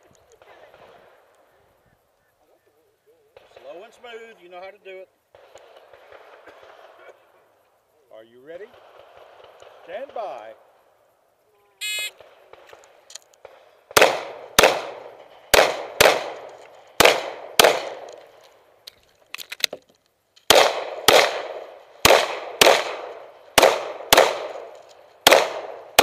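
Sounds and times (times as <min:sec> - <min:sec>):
pistol shots: 0:13.4 - 0:18.3, 0:20.5 - 0:26.0.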